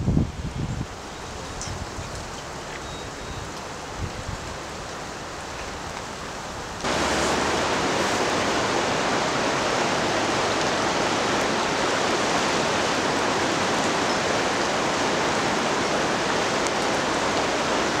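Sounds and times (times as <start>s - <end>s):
rushing river water: 0.0s - 18.0s.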